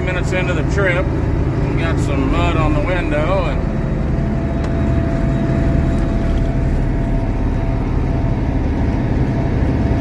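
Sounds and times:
thin steady whine: 0:00.0 - 0:10.0
tractor diesel engine running: 0:00.0 - 0:10.0.

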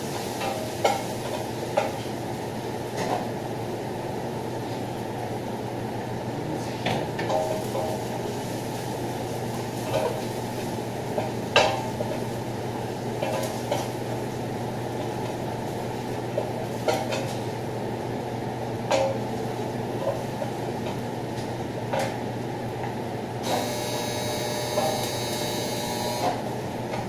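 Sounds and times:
garlic frying in oil: 0:00.0 - 0:03.2, 0:07.3 - 0:18.1
extractor hood fan hum: 0:00.0 - 0:27.0.

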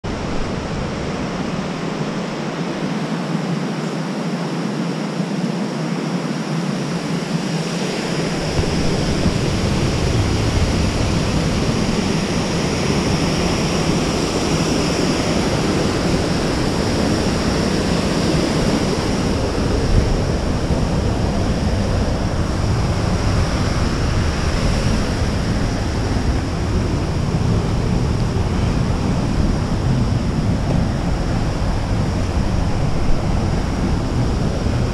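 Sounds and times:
waterfall rushing: 0:07.2 - 0:34.9
low rumble on microphone: 0:07.8 - 0:34.9.

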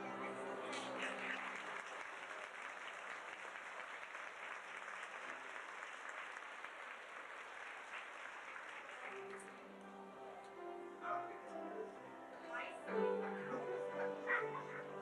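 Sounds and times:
audience applause: 0:00.0 - 0:10.0.

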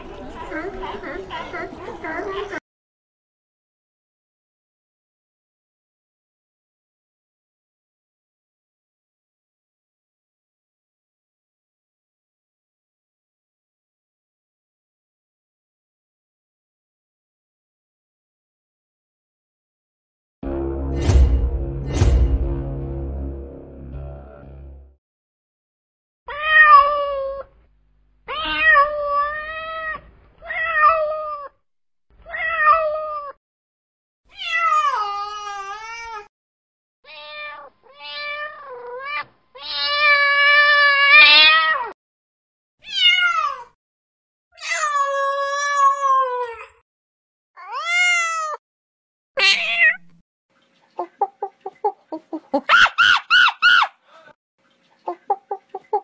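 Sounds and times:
cat meowing: 0:26.3 - 0:27.5, 0:28.3 - 0:31.5, 0:32.2 - 0:33.4, 0:34.3 - 0:36.3, 0:37.1 - 0:42.0, 0:42.9 - 0:43.7, 0:44.6 - 0:46.7, 0:47.6 - 0:48.6, 0:49.4 - 0:50.2.

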